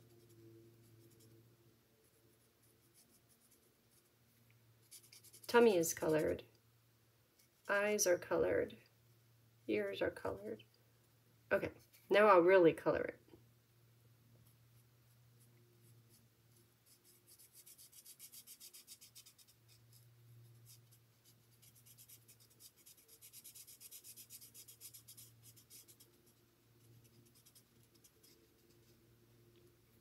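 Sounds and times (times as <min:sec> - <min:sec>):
marker scratching on cardstock: 0:04.8 - 0:06.4, 0:16.1 - 0:20.0, 0:20.6 - 0:29.0.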